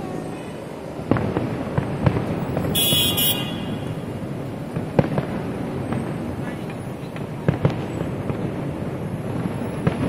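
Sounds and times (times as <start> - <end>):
street traffic: 0.0 - 10.0
distant fireworks booming: 1.0 - 10.0
sharp bangs: 2.1 - 5.4
short high-pitched toot: 2.8 - 4.0.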